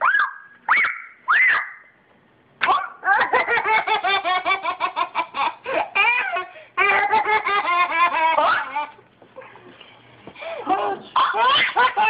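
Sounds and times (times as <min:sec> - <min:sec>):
baby laughing: 0:02.7 - 0:09.0, 0:10.4 - 0:12.0.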